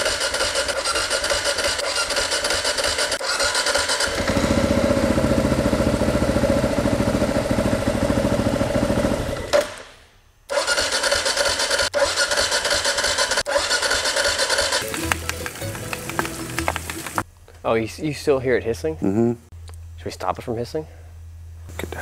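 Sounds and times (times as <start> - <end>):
single-cylinder engine running: 0.0 - 9.6, 10.5 - 17.2.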